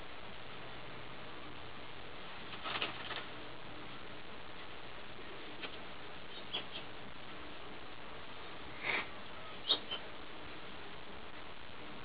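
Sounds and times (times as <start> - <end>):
steady hiss: 0.0 - 12.0.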